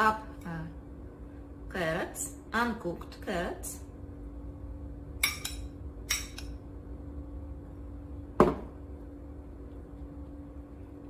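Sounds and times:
faint steady hum: 0:00.0 - 0:11.0
glass bowl knocking on countertop: 0:08.4 - 0:08.7.

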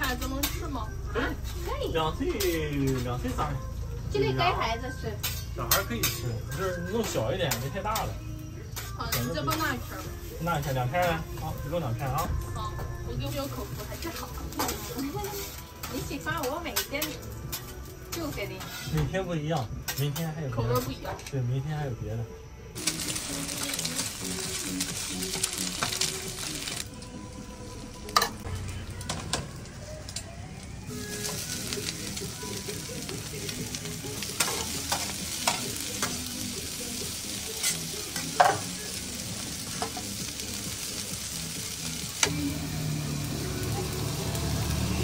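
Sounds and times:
egg and vegetables sizzling on griddle: 0:00.0 - 0:21.9, 0:22.7 - 0:45.0
metal spatulas scraping: 0:05.2 - 0:08.1, 0:14.1 - 0:19.1, 0:37.6 - 0:38.6.

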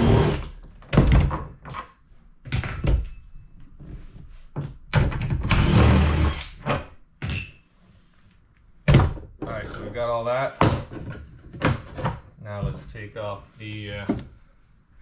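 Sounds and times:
cordless drill spinning: 0:05.5 - 0:06.6.

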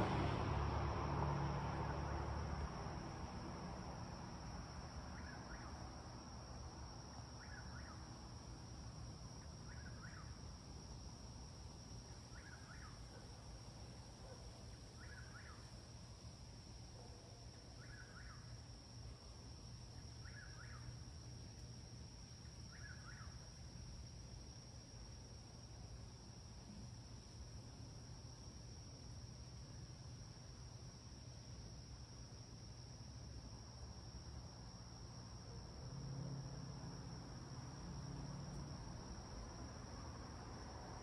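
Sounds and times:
distant traffic rumble: 0:00.0 - 0:23.2.

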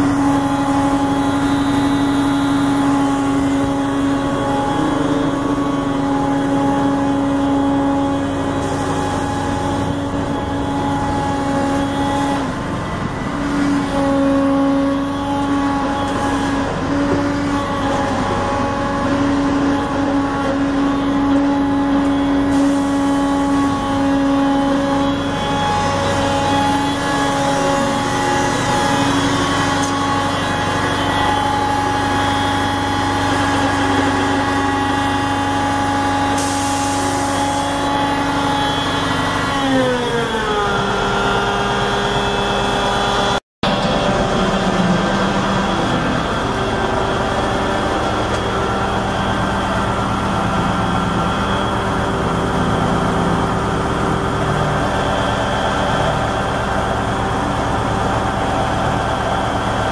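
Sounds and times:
diesel engine idling: 0:00.0 - 0:39.5, 0:40.3 - 0:59.9
steady droning tone: 0:40.4 - 0:59.9.

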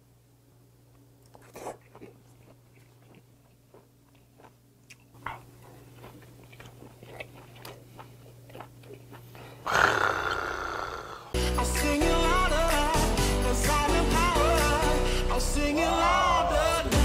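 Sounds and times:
wet chewing and mouth clicks: 0:00.9 - 0:09.6.

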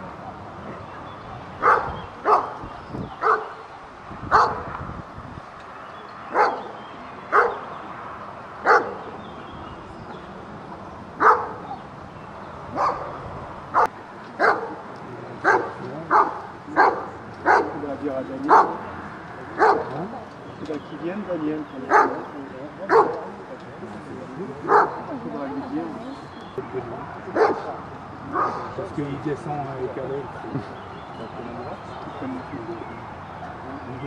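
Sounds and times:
dog barking: 0:01.6 - 0:02.6, 0:03.2 - 0:03.6, 0:04.3 - 0:04.7, 0:06.3 - 0:07.7, 0:08.6 - 0:09.0, 0:11.2 - 0:11.8, 0:12.7 - 0:14.8, 0:15.4 - 0:17.8, 0:18.5 - 0:18.8, 0:19.6 - 0:20.0, 0:21.9 - 0:22.3, 0:22.9 - 0:23.4, 0:24.6 - 0:25.1, 0:27.4 - 0:28.8.

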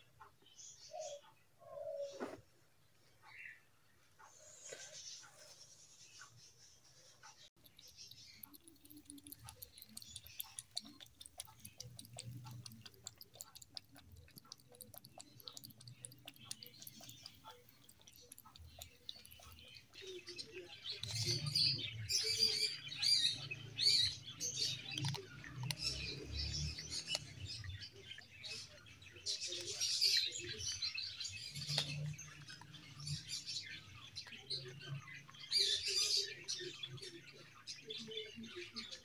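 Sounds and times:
kitten lapping milk: 0:07.6 - 0:34.5
kitten crunching dry kibble: 0:08.4 - 0:19.6.

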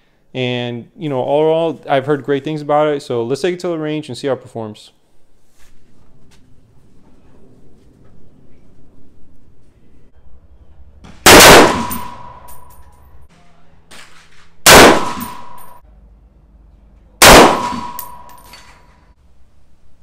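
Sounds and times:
rifle shots: 0:11.2 - 0:12.5, 0:14.6 - 0:15.8, 0:17.2 - 0:18.4.

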